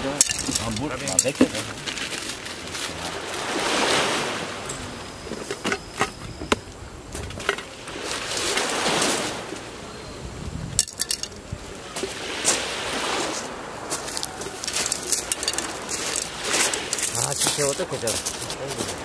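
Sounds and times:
waves washing on shore: 0:00.0 - 0:19.0.

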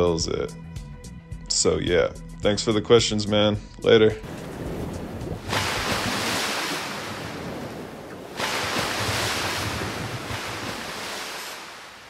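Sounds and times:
ocean waves crashing: 0:04.2 - 0:12.0.

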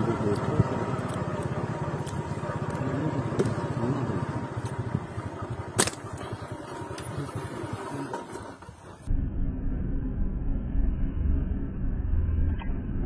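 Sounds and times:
small engine chugging: 0:00.0 - 0:09.1.

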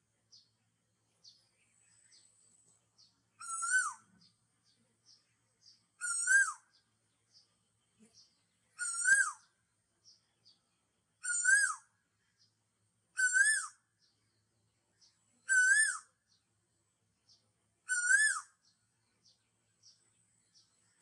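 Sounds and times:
bird calling: 0:03.4 - 0:04.1, 0:06.0 - 0:06.6, 0:08.8 - 0:09.5, 0:11.2 - 0:11.9, 0:13.2 - 0:13.8, 0:15.4 - 0:16.1, 0:17.8 - 0:18.7.

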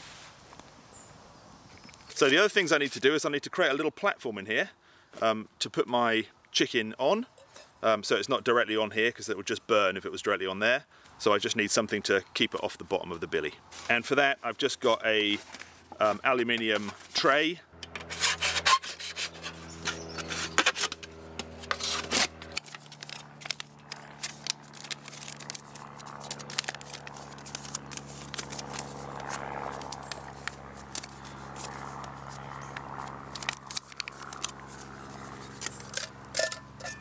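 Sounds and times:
knife cutting foil tray: 0:17.9 - 0:32.5
foil crinkling: 0:19.4 - 0:36.6.

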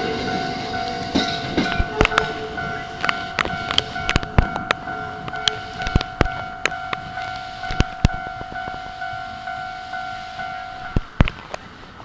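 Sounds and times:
train wheels clacking over rail joints: 0:00.0 - 0:08.7
level-crossing warning bell: 0:00.0 - 0:11.6.

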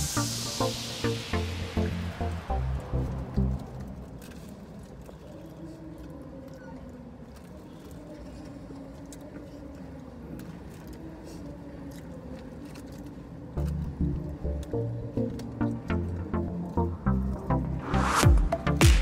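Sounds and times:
small clicks and crinkles: 0:02.8 - 0:17.6.

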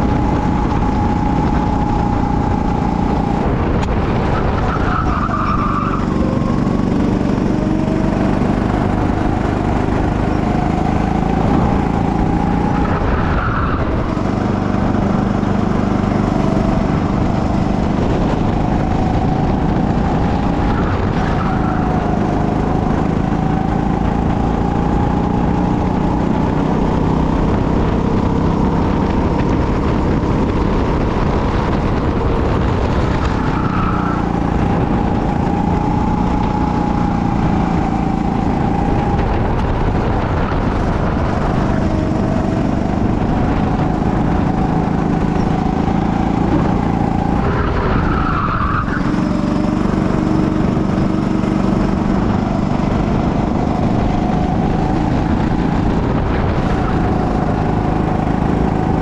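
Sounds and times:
go-kart engine running: 0:00.0 - 0:59.0
tyre squeals: 0:04.4 - 0:06.4, 0:47.5 - 0:49.3.

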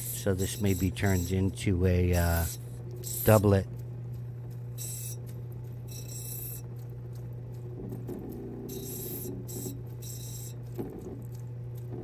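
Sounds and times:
high grinding noise: 0:00.0 - 0:03.8, 0:04.7 - 0:06.8, 0:07.6 - 0:11.1
grinding wheel motor hum: 0:00.0 - 0:12.0.

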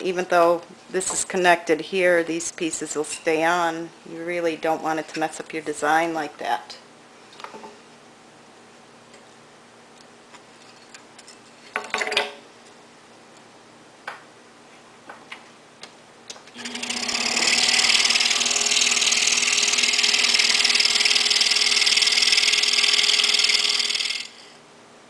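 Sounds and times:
scroll saw cutting wood: 0:16.6 - 0:24.5.

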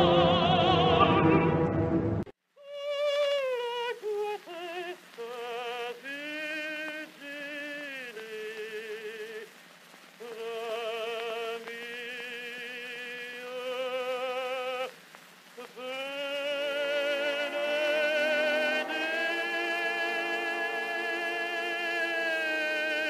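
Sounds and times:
recording surface hiss: 0:00.0 - 0:23.0
woman singing opera: 0:15.6 - 0:23.0.

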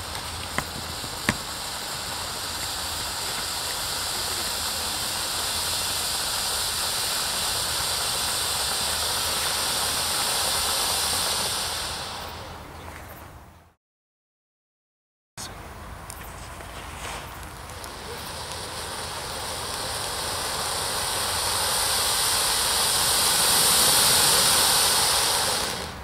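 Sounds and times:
sharp cracks: 0:00.0 - 0:12.4, 0:16.1 - 0:26.0
firework fountain hissing: 0:00.0 - 0:13.5, 0:15.7 - 0:26.0.

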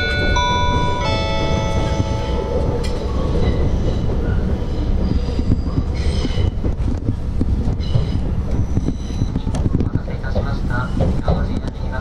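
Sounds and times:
announcement chime: 0:00.0 - 0:02.7
train running rumble: 0:00.0 - 0:12.0
high wheel squeal: 0:00.4 - 0:06.6, 0:07.8 - 0:09.5.

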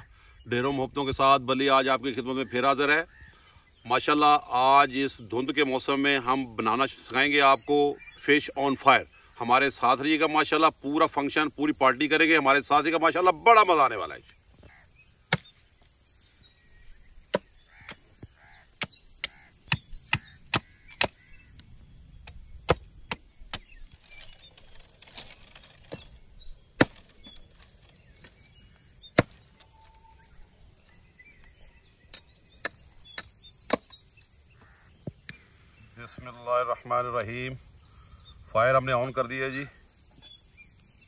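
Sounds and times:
hatchet chopping branches: 0:15.3 - 0:15.5, 0:17.3 - 0:18.1, 0:18.8 - 0:21.3, 0:22.2 - 0:24.4, 0:26.8 - 0:28.4, 0:29.1 - 0:29.7, 0:32.1 - 0:34.0.

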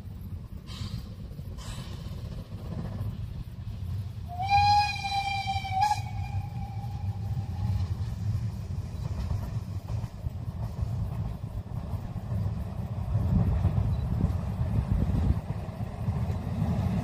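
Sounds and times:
steam whistle blast: 0:04.3 - 0:07.6
low rumble: 0:05.6 - 0:17.0.

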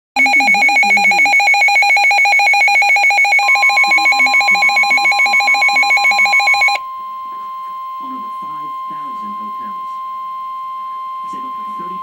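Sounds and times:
warbling two-tone alert alarm: 0:00.2 - 0:06.8
steady single warning tone: 0:00.2 - 0:12.0.

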